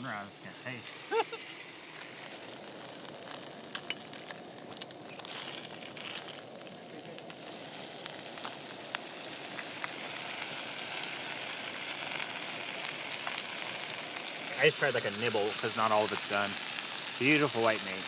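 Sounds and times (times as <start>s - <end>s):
fish sizzling in a pan: 0.0s - 18.0s.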